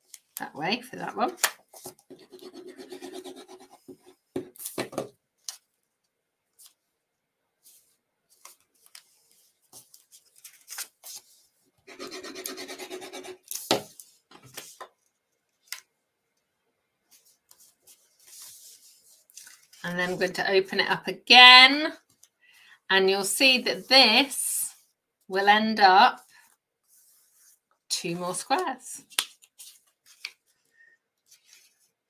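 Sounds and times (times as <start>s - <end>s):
paper and card rustling: 1.3s - 5.7s, 7.6s - 11.5s, 17.1s - 20.4s, 28.5s - 32.0s.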